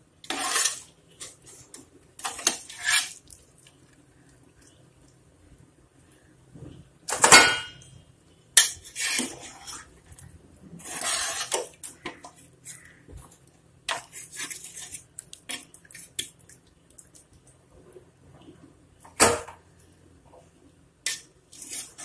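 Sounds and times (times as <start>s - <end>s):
metal ladle scraping metal pot: 0.2s - 1.3s, 10.8s - 11.7s, 21.1s - 22.0s.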